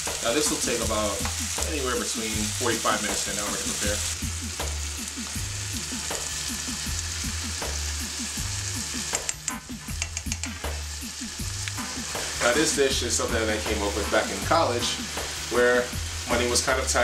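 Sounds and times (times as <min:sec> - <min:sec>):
chicken sizzling in a frying pan: 0:00.0 - 0:17.0
utensil clicking against a pan: 0:09.1 - 0:10.6, 0:11.6 - 0:11.8.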